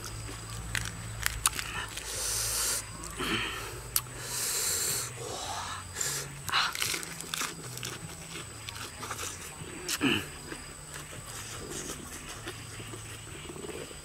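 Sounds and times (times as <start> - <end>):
chewing noises: 0.0 - 5.2, 5.8 - 14.0
man hissing breaths: 1.7 - 6.8.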